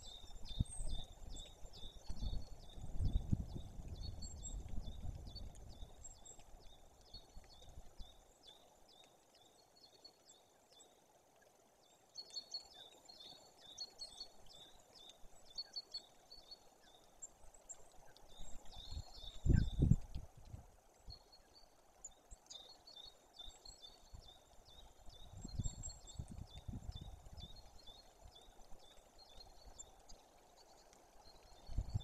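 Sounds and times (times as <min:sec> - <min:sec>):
small birds chirping: 0:00.0 - 0:32.0
wind buffeting microphone: 0:02.0 - 0:06.0, 0:18.7 - 0:20.7, 0:25.2 - 0:27.6, 0:31.6 - 0:32.0.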